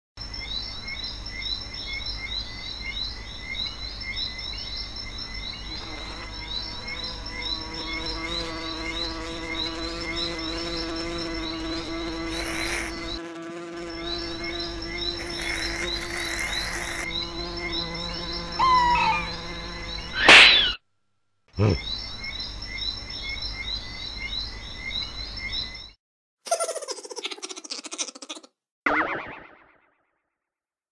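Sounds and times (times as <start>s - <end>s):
cartoon bee buzzing: 5.7s - 20.8s, 26.5s - 28.5s
rapid high chirping: 26.5s - 28.5s.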